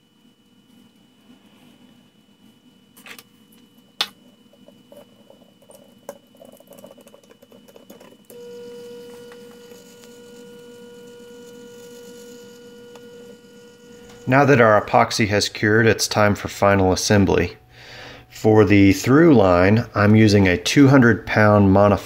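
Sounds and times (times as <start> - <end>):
small electric motor humming: 5.7 - 16.8.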